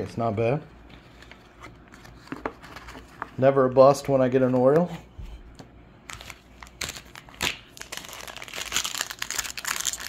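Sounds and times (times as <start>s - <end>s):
plastic wrapper crinkling: 6.1s - 10.0s.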